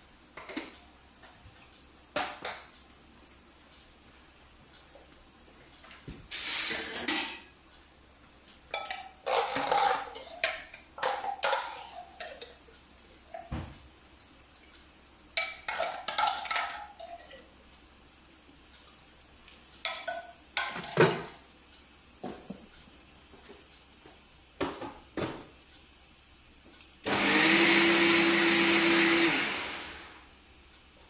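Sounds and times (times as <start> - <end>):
dishes and utensils clattering: 0.4 - 2.7, 6.3 - 7.6, 8.7 - 12.6, 15.4 - 17.4, 19.9 - 21.4.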